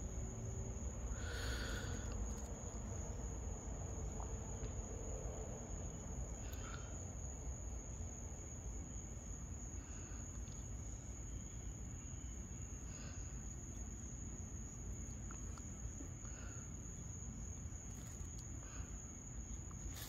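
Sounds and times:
low background rumble: 0.0 - 20.0
faint rustle: 17.4 - 20.0.

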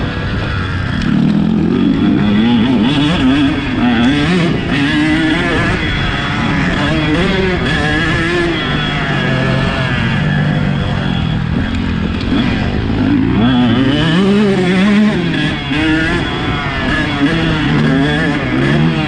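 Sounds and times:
motocross engine revving: 0.0 - 19.0.

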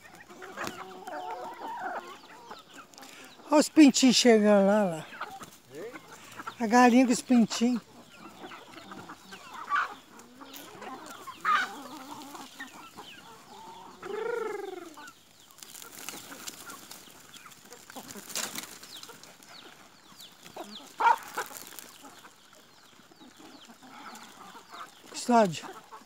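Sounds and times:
chickens clucking and squawking: 0.0 - 26.0
chicks peeping: 0.0 - 26.0.

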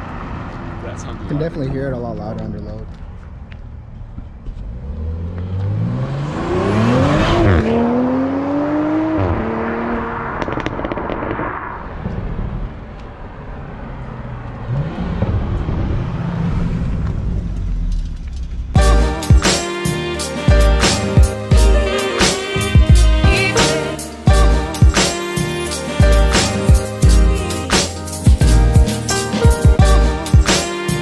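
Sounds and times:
car engine accelerating hard: 4.5 - 18.8.

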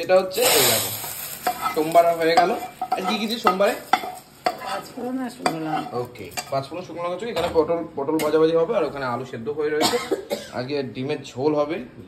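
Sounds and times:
hot oil sizzling in a pot: 0.0 - 6.8
ladle stirring: 0.4 - 6.6.

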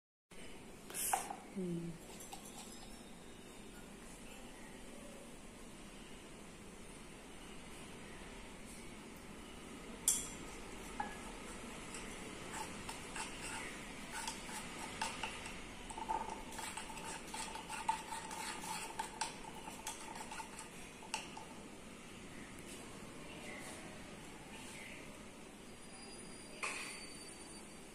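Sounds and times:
faint ringing tone: 2.6 - 6.4, 25.0 - 27.9.

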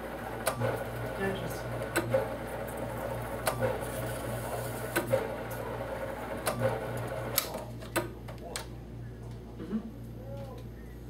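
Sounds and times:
machine humming: 0.0 - 9.8.

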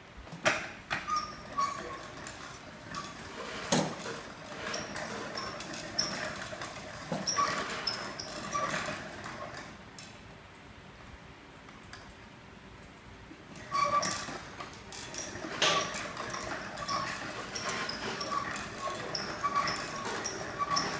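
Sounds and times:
short high squeaks: 1.0 - 9.6, 13.6 - 20.9.

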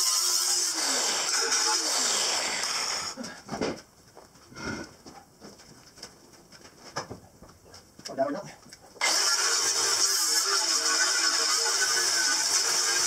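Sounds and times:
angle grinder cutting metal: 0.0 - 3.2, 9.0 - 13.0.

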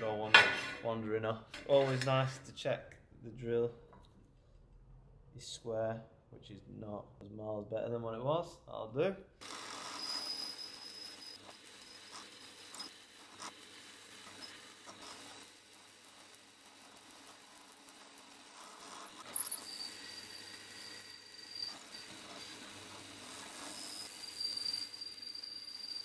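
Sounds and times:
drill whining: 9.4 - 26.0
swarf scraping and ticking: 9.4 - 26.0.

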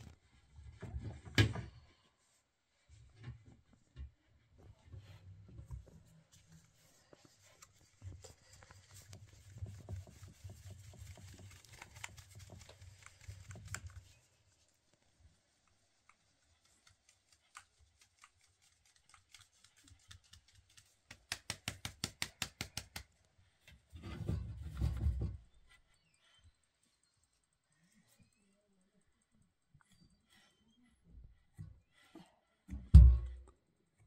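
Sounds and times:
flour scraping and rustling: 6.9 - 14.6.

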